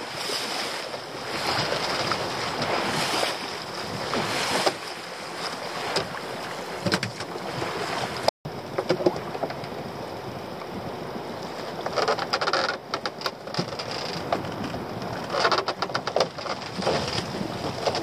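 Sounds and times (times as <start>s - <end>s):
water splashing off rope: 0.0s - 8.3s
wet rope hauled over boat side: 0.0s - 8.3s
wind and sea noise: 0.0s - 18.0s.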